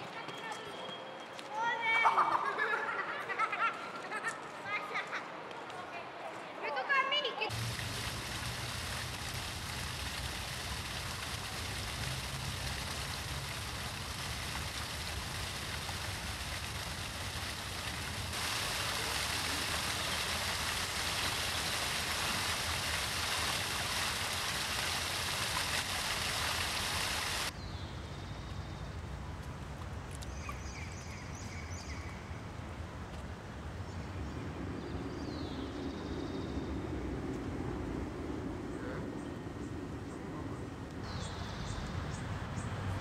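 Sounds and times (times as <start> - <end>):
running water: 7.5 - 27.6.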